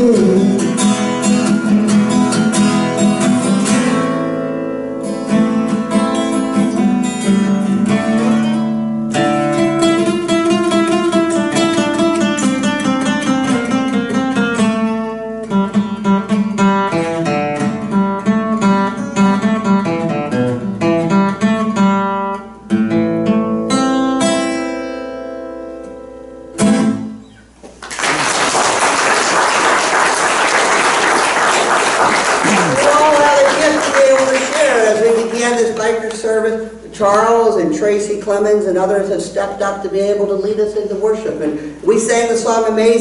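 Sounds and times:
acoustic guitar: 0:00.0 - 0:43.0
applause: 0:27.7 - 0:35.6.

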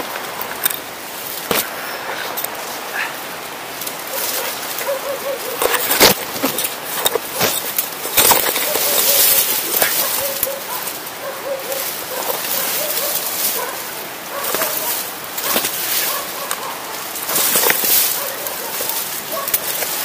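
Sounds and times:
leaves and branches rustling: 0:00.0 - 0:20.0
twigs cracking and crunching: 0:03.7 - 0:20.0.

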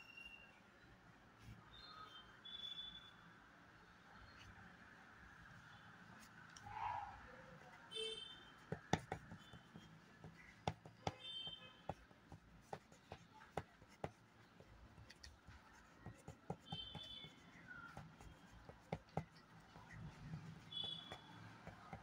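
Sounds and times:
pencil tapping on paper: 0:08.6 - 0:22.0.

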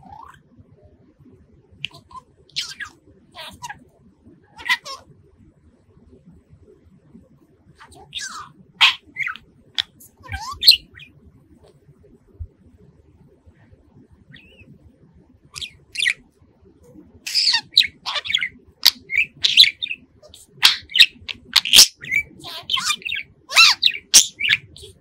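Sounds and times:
budgerigar chirping and whistling: 0:01.8 - 0:03.7, 0:07.9 - 0:11.1, 0:14.3 - 0:14.7, 0:15.6 - 0:16.2, 0:17.3 - 0:25.0.

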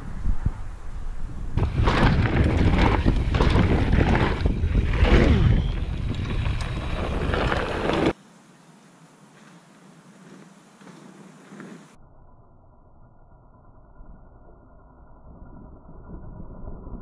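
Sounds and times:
wind buffeting microphone: 0:00.0 - 0:08.2
mountain bike rattling on dirt trail: 0:01.6 - 0:08.2.

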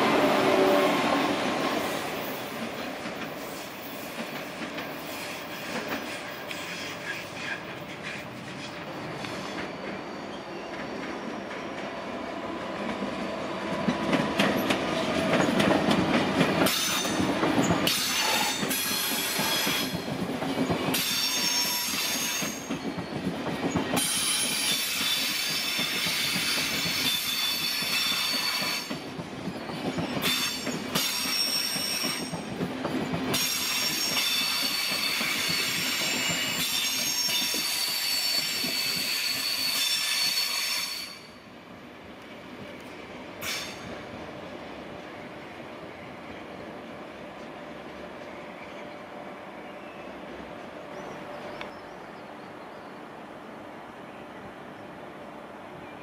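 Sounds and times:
train wheels squealing: 0:00.0 - 0:12.2, 0:14.4 - 0:41.5, 0:43.4 - 0:44.0
train rumble and clatter: 0:00.0 - 0:56.0.

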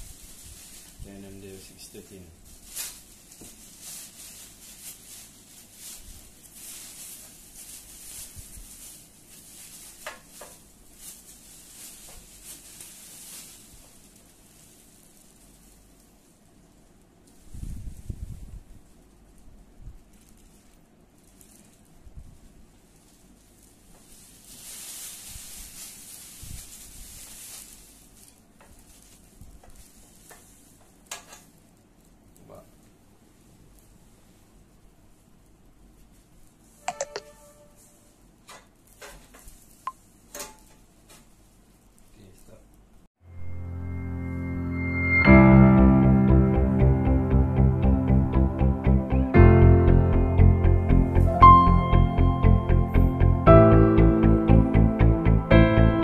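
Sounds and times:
plastic bag rustling: 0:00.0 - 0:43.0
plastic wrapping crinkling: 0:00.0 - 0:43.0.

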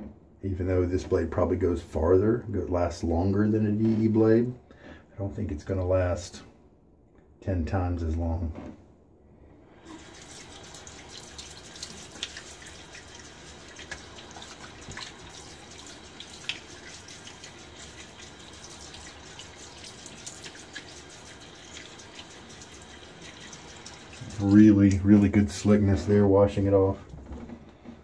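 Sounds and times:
water splashing on face: 0:09.8 - 0:25.4
water dripping: 0:09.8 - 0:25.8
tap running into sink: 0:09.9 - 0:21.0.

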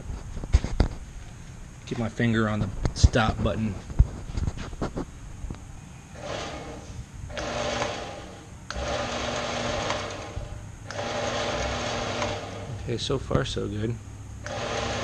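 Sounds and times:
bandsaw motor running: 0:06.1 - 0:12.9, 0:14.4 - 0:15.0.

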